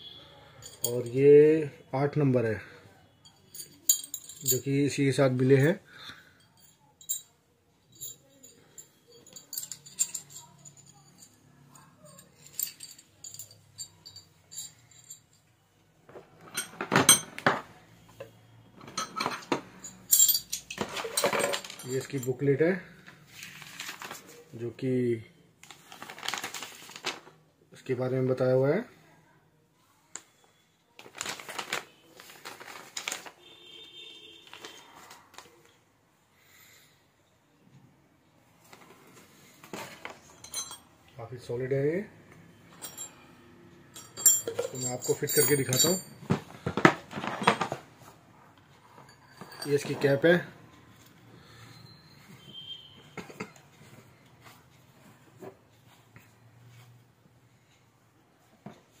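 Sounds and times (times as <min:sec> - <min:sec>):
clattering in a plastic case: 0:16.1 - 0:17.7, 0:20.6 - 0:22.1, 0:44.2 - 0:48.0
paper rustling: 0:23.3 - 0:24.5, 0:25.6 - 0:27.4, 0:31.0 - 0:33.4, 0:34.4 - 0:35.6.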